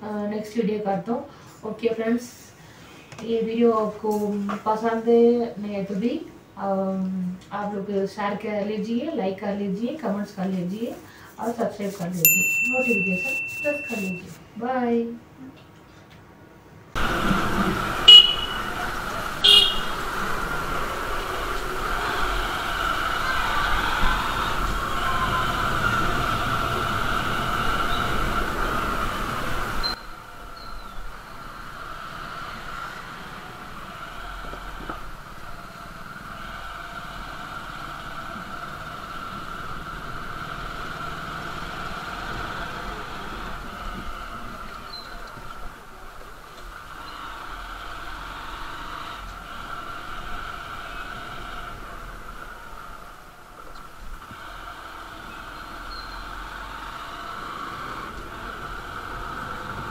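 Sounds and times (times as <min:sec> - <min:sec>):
high whine: 0:11.4 - 0:14.4
horn tooting: 0:11.4 - 0:14.4, 0:17.0 - 0:20.4
motorcycle engine: 0:17.0 - 0:59.9.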